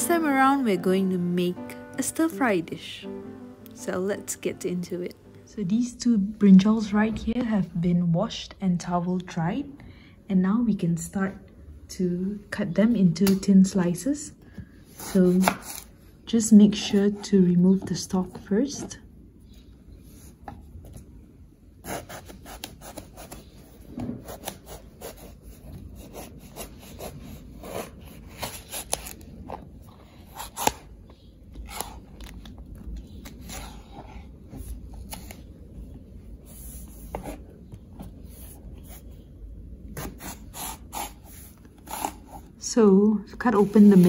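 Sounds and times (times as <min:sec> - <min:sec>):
knife slicing through eggplant: 0:14.9 - 0:15.9, 0:21.8 - 0:23.6, 0:30.3 - 0:30.9, 0:40.0 - 0:42.5.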